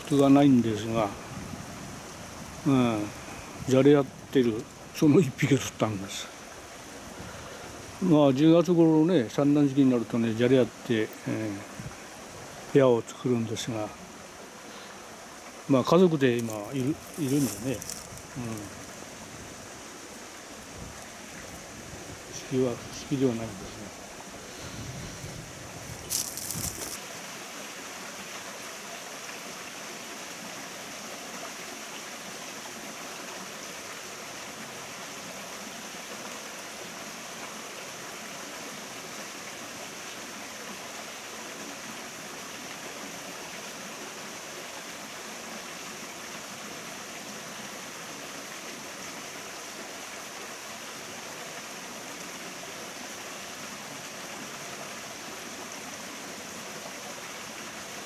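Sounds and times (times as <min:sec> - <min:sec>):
stream water running over rocks: 0:00.0 - 0:58.0.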